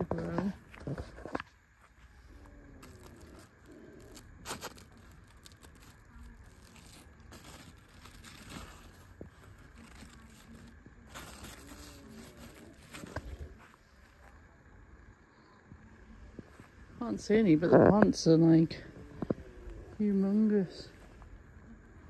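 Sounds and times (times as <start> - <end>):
leaves rustling: 0.0 - 14.3.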